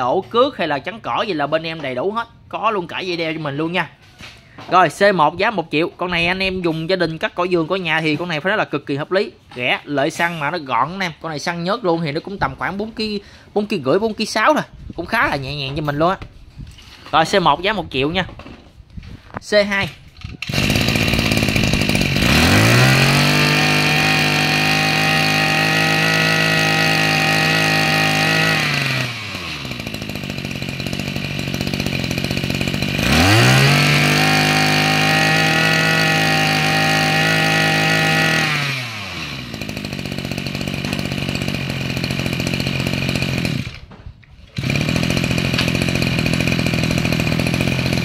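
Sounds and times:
brush-cutter engine revving: 20.2 - 48.0.

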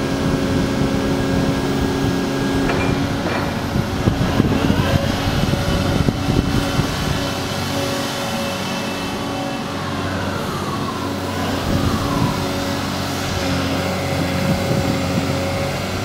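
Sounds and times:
excavator engine running: 0.0 - 16.0
irregular clatter: 2.6 - 4.4.

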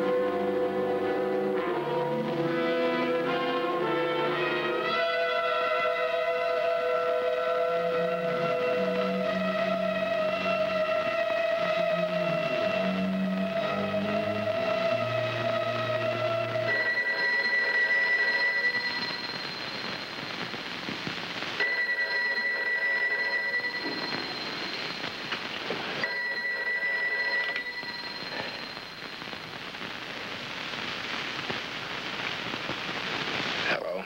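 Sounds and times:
soundtrack hiss: 0.0 - 34.0
telephone bell ringing: 16.7 - 20.1, 21.6 - 25.2, 26.0 - 29.1.

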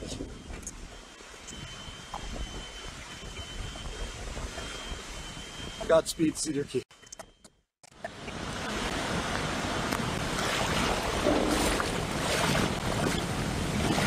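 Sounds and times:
wind on microphone: 0.0 - 5.9, 8.3 - 14.0
floodwater lapping and sloshing: 8.1 - 14.0.

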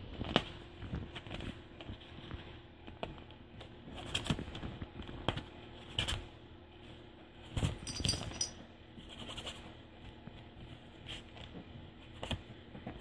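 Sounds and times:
kitten scratching on fabric: 8.9 - 12.5.

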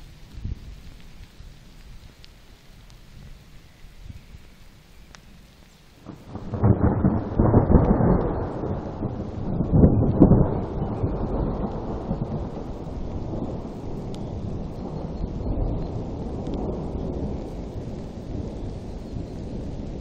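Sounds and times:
thunder rumbling: 6.0 - 20.0.

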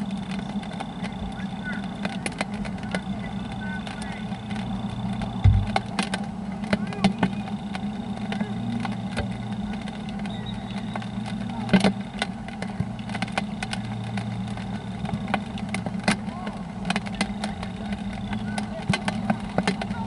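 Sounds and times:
low engine hum: 0.0 - 20.0
raindrops tapping: 0.0 - 20.0
low thump: 5.4 - 5.9.

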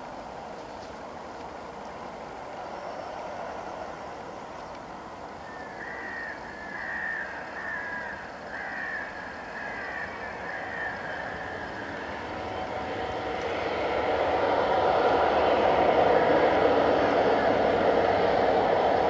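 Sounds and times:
crow cawing: 5.4 - 11.8
jet engines whining: 9.2 - 19.0.

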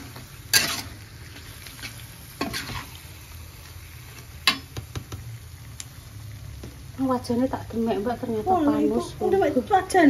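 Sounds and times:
food sizzling in a frying pan: 0.0 - 10.0.

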